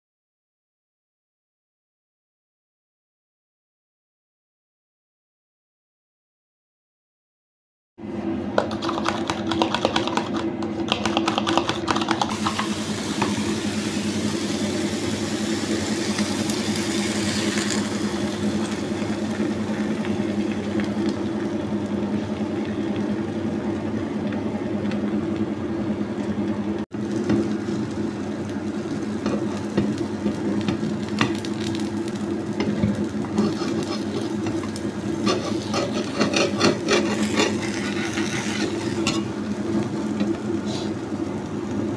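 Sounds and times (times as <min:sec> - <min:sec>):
fork beating eggs in tub: 0:08.6 - 0:12.6, 0:33.4 - 0:39.2
egg sizzling in frying pan: 0:12.0 - 0:25.5, 0:26.9 - 0:41.9.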